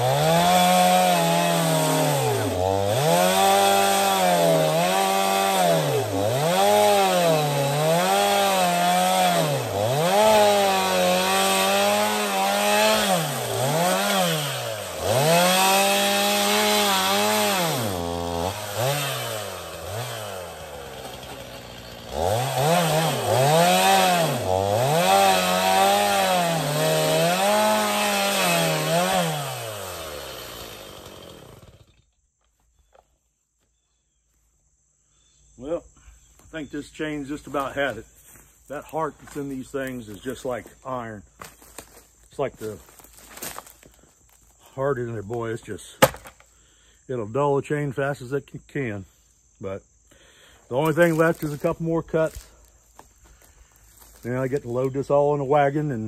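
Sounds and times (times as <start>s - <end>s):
chainsaw cutting log: 0.0s - 32.2s, 38.7s - 44.5s, 45.2s - 46.5s, 50.7s - 56.0s.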